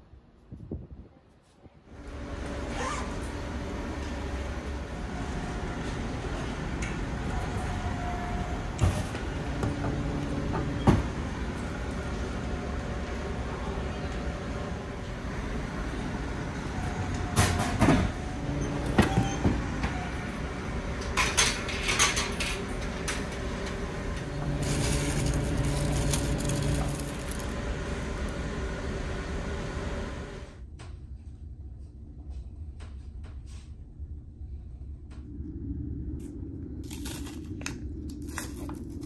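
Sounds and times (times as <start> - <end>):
ship engines rumbling: 2.0 - 30.6.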